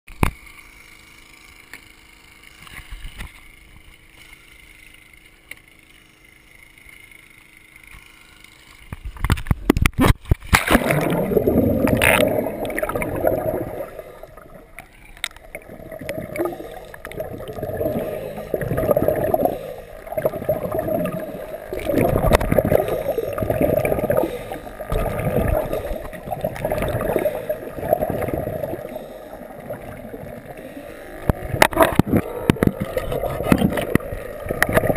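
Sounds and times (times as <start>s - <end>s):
splash and clatter into water: 9.2s - 13.4s
underwater regulator exhaust bubbles: 9.8s - 34.9s.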